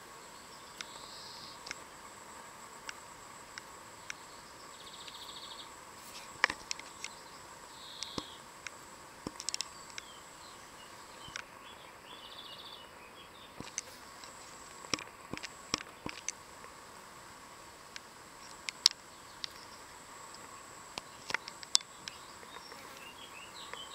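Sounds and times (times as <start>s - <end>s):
faint steady high hum: 0.0s - 23.9s
small birds chirping: 0.2s - 1.9s, 3.9s - 8.5s, 9.2s - 16.4s, 18.4s - 23.9s.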